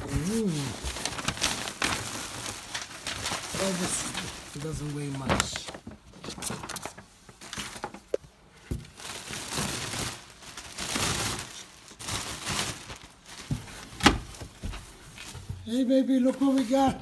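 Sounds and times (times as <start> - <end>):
plastic wrapping crinkling: 0.0 - 17.0.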